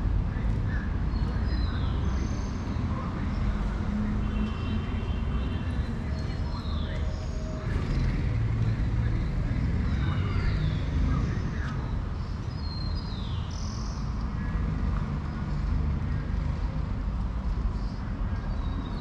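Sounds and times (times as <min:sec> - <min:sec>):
passing traffic rumble: 0:00.0 - 0:19.0
birds chirping: 0:00.6 - 0:15.5.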